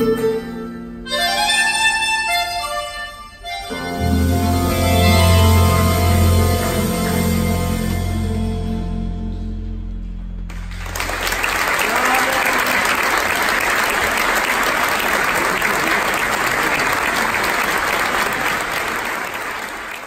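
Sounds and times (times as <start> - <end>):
band chord ringing: 3.4 - 11.8
audience applause: 10.5 - 20.0.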